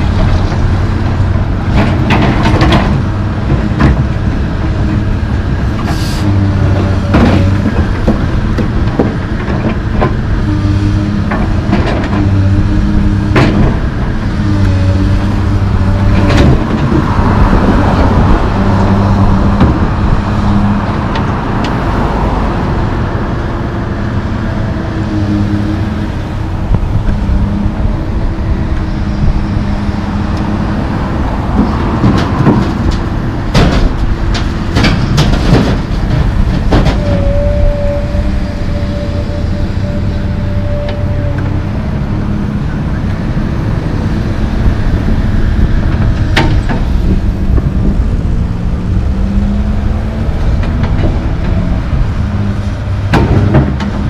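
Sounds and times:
excavator diesel engine running: 0.0s - 54.0s
passing road traffic: 0.0s - 54.0s
concrete chunks clattering into truck: 31.8s - 37.2s.

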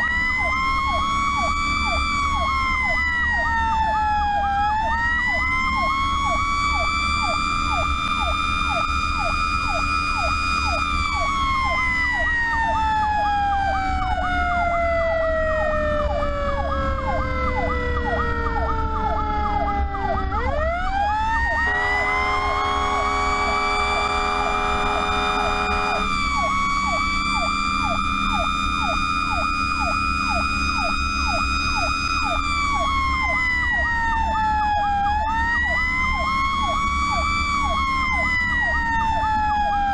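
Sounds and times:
diesel engine rumbling: 0.0s - 39.9s
electronic siren yelping: 0.0s - 39.9s
mechanical siren wailing: 0.0s - 39.9s
air horn blast: 21.6s - 26.2s.

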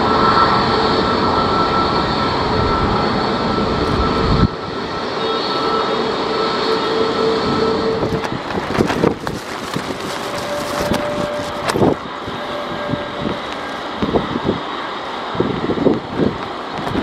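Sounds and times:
jet airliner engines humming: 0.0s - 17.0s
wind gusts on microphone: 0.0s - 17.0s
heavy rain: 8.0s - 17.0s.

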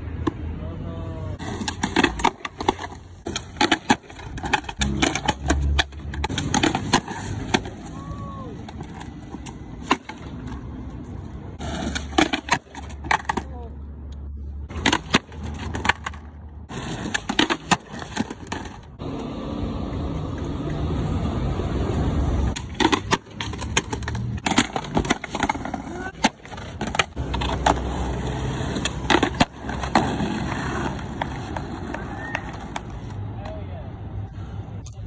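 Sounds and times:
skateboard wheels rolling on pavement: 0.0s - 35.0s
skateboard clacking: 1.4s - 13.8s, 14.7s - 21.0s, 22.5s - 33.6s.

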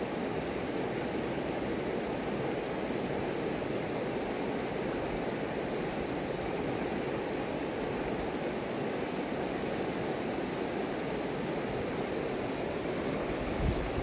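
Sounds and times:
river rushing over gravel: 6.0s - 14.0s.

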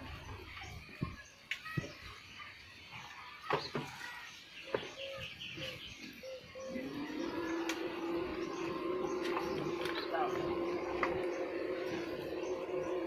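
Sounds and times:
birds chirping: 0.0s - 13.0s
small electric machine humming: 6.7s - 13.0s.

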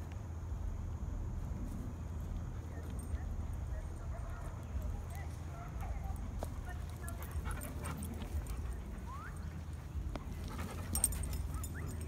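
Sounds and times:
dog panting: 4.3s - 12.0s.

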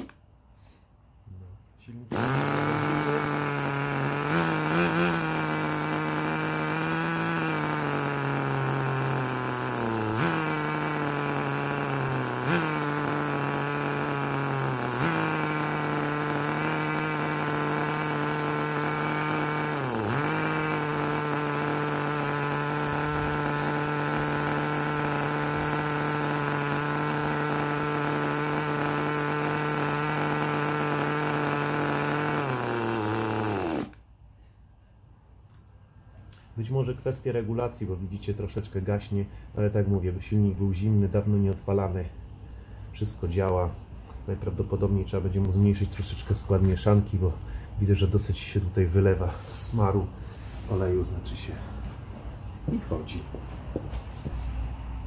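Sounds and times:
small nitro engine idling unsteadily: 2.1s - 34.0s.

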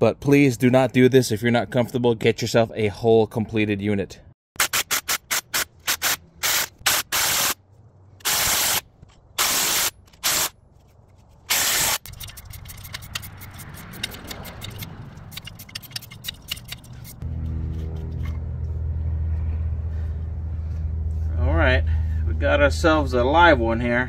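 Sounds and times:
clicking and rattling: 10.8s - 18.4s
low engine hum: 13.1s - 23.6s.

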